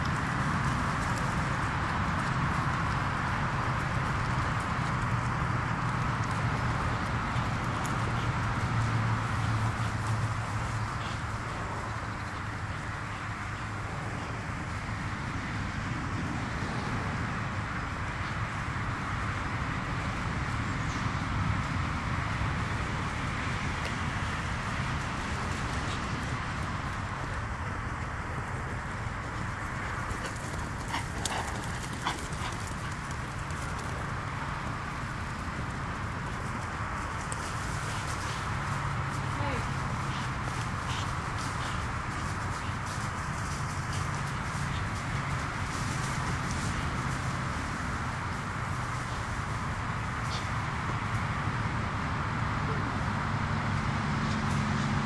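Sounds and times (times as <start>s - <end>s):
pony hooves thudding on grass: 0.0s - 52.3s
rushing background noise with hum: 0.0s - 55.0s.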